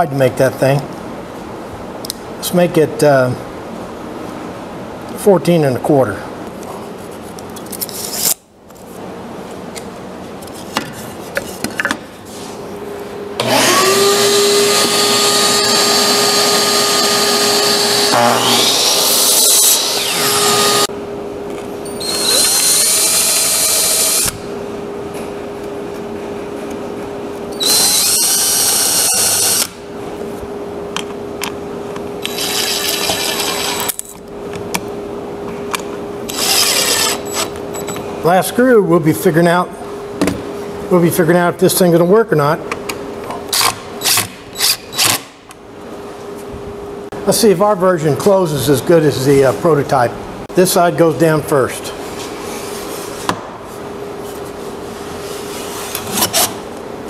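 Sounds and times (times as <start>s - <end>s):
steady hum: 0.0s - 57.0s
impact driver drilling into wood: 13.4s - 20.9s, 21.9s - 24.5s, 27.6s - 29.8s, 32.2s - 33.9s, 36.3s - 37.6s
miter saw cutting wood: 13.4s - 20.9s, 22.0s - 24.4s, 27.6s - 29.8s, 32.2s - 33.9s, 36.3s - 37.6s.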